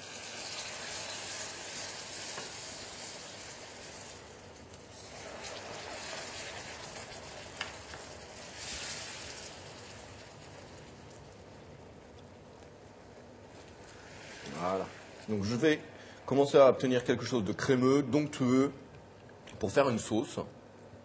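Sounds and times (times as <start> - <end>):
caramel sizzling and bubbling: 0.0 - 16.2.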